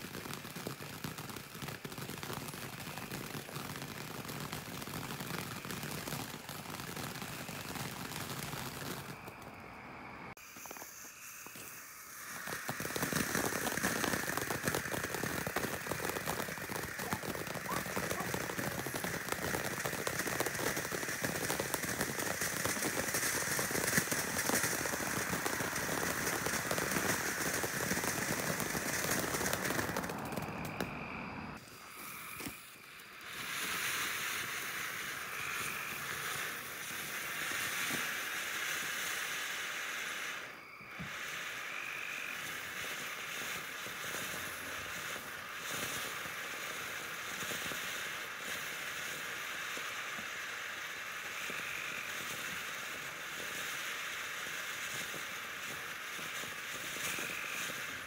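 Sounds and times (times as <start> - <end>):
fireworks fountain hissing and crackling: 0.0 - 58.0.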